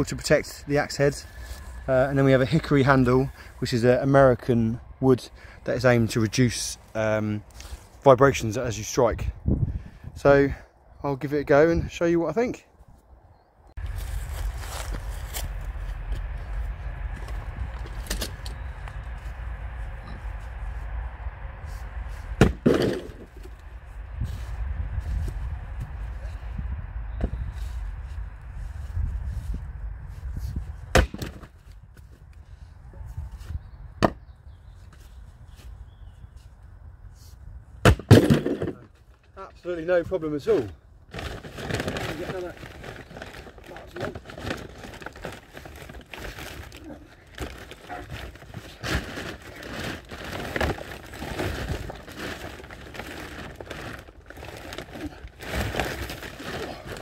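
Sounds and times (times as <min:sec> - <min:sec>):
crinkly rustling: 0:13.8 - 0:19.4, 0:41.1 - 0:57.0
wooden knocks of logs: 0:22.4 - 0:23.5, 0:30.9 - 0:31.5, 0:34.0 - 0:34.2, 0:37.8 - 0:39.0.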